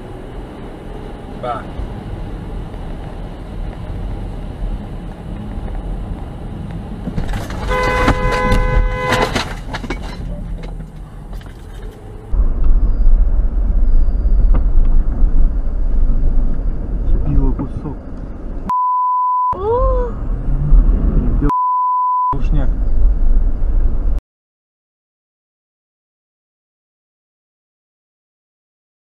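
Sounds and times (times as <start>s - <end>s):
tyre and road noise: 0.0s - 18.7s, 19.6s - 21.5s, 22.3s - 24.2s
car horn: 7.5s - 9.6s
low rumble: 9.8s - 18.8s, 19.6s - 21.6s, 22.3s - 24.2s.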